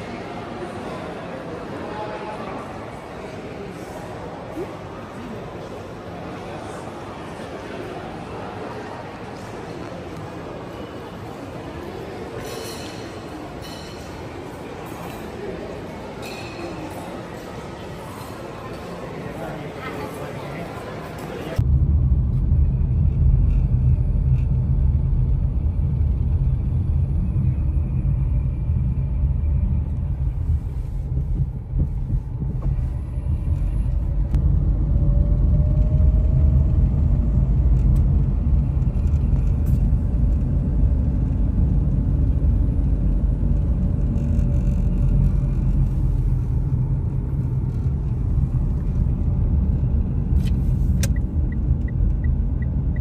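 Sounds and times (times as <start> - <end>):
car interior road rumble: 21.6 - 53.0.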